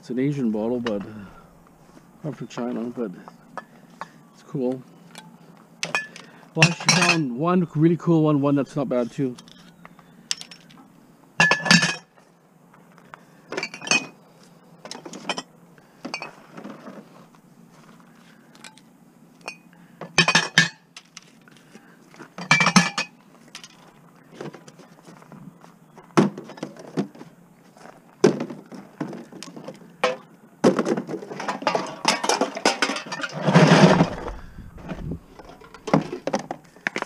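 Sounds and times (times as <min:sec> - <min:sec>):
glass bottles and cans clattering: 0:05.8 - 0:07.3, 0:11.4 - 0:12.1, 0:13.5 - 0:14.2, 0:14.8 - 0:16.8, 0:19.4 - 0:20.9, 0:22.4 - 0:23.8, 0:28.3 - 0:34.6, 0:35.3 - 0:36.6.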